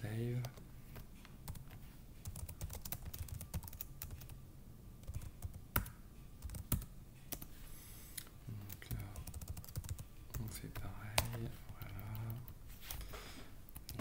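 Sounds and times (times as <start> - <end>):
keyboard typing: 0.4 - 4.4, 5.0 - 7.5, 8.7 - 13.0, 13.7 - 14.0.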